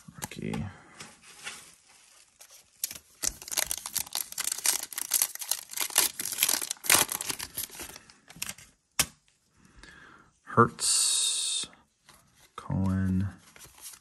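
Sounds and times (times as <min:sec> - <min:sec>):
foil wrapper tearing and crinkling: 0:02.2 - 0:08.1.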